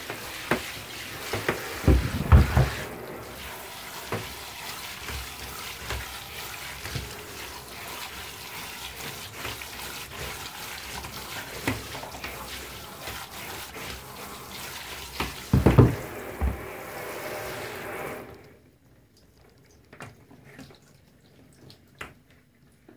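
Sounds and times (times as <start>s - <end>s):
tap water spraying and splashing: 0.0s - 18.6s
knocks: 1.4s - 3.0s, 15.5s - 16.7s
faint drips: 18.0s - 22.9s.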